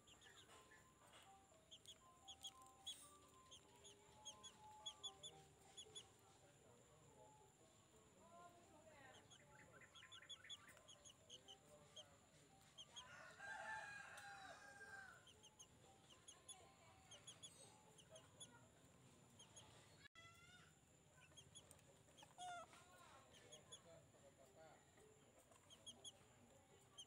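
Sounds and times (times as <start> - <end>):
rooster crowing faintly: 12.9 - 15.3.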